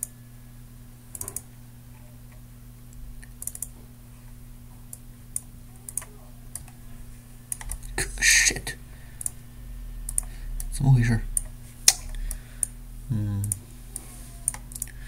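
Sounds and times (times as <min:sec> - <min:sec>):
steady low hum: 0:00.0 - 0:15.0
computer mouse and keyboard clicks: 0:01.1 - 0:01.5, 0:03.2 - 0:03.8, 0:04.9 - 0:06.8, 0:07.5 - 0:07.8, 0:10.1 - 0:10.7, 0:13.4 - 0:15.0.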